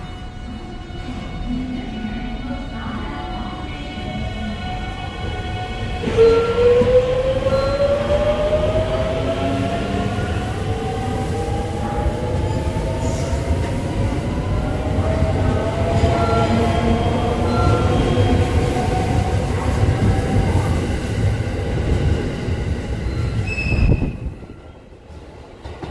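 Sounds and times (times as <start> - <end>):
train wheels rumbling on rail: 2.2 - 25.9
high squeal: 23.0 - 24.7.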